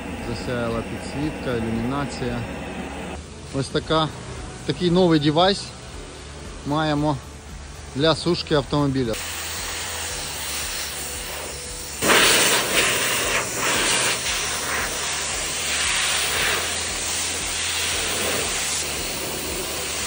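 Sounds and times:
air dryer blowing: 0.0 - 3.2, 9.2 - 20.0
low hum: 0.0 - 3.5.

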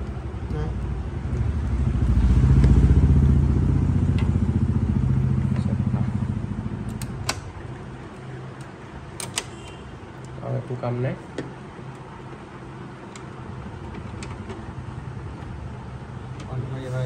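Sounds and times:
vehicle engine passing by: 1.3 - 7.0
sharp clicks: 6.8 - 7.6.

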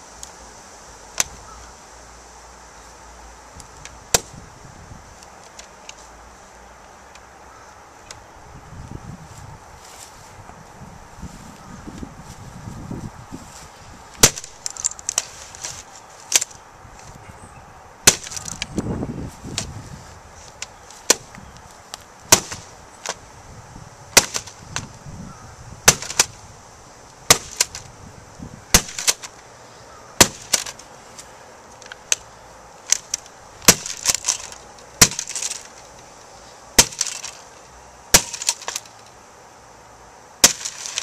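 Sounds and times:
plastic cracking: 31.8 - 36.0, 36.8 - 37.4, 38.2 - 38.9
mace smashing laptop: 36.8 - 37.3, 38.2 - 38.8, 40.4 - 41.0.

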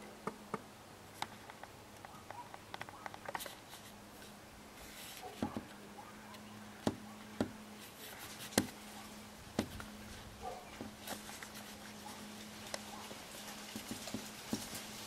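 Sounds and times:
sharp clicks and knocks: 8.5 - 8.8.

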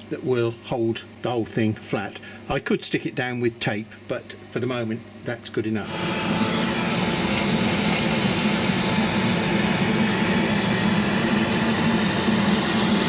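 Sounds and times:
laser cutter fans rushing: 5.6 - 13.0.

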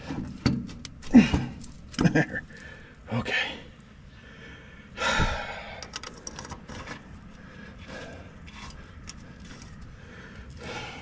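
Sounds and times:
metal clicks and scrapes: 5.8 - 9.9.

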